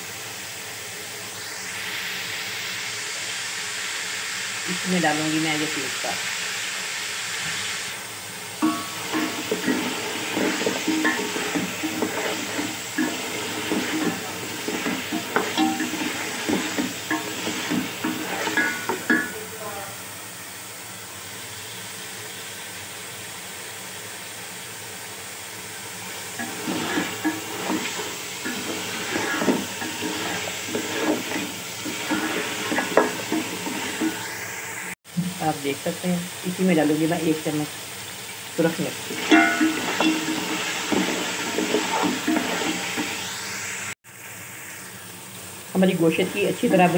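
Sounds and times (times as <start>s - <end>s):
meat sizzling in hot oil: 0.0s - 46.9s
wooden spoon stirring and scraping: 8.6s - 19.4s, 26.4s - 34.3s, 39.0s - 43.3s, 46.1s - 46.9s.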